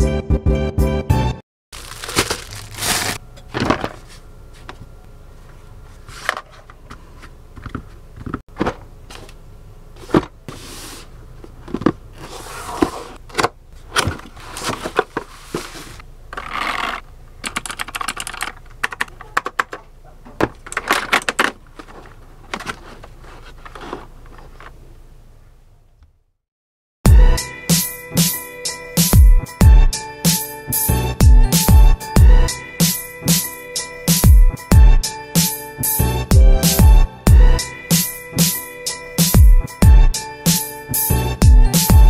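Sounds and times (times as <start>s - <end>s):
plastic packaging crinkling: 1.7s - 3.9s.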